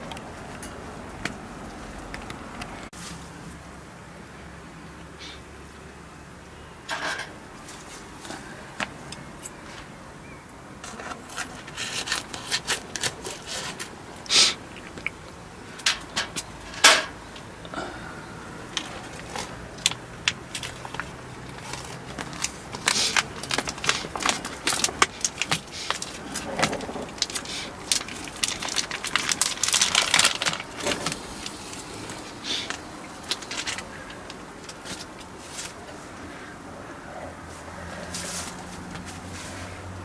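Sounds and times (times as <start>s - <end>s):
plastic packets crinkling: 18.8s - 35.8s.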